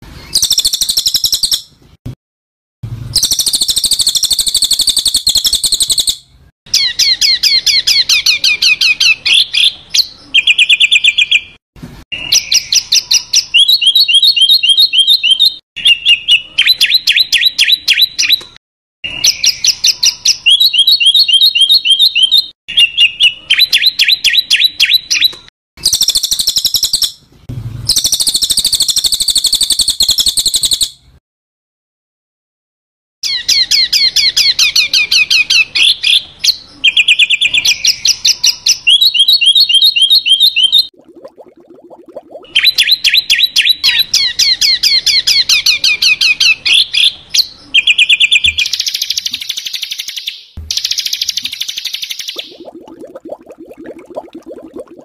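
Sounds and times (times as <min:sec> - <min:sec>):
songbird buzzy calls and trills: 0:00.1 - 0:01.8, 0:03.1 - 0:11.6, 0:19.1 - 0:27.2, 0:27.8 - 0:31.1, 0:33.2 - 0:54.7.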